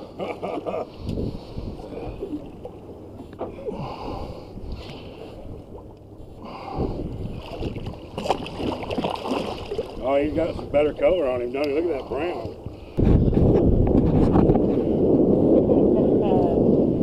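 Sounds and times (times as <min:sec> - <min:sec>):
water splashing against boat: 0:00.0 - 0:16.6
fish thrashing at surface: 0:07.4 - 0:10.0.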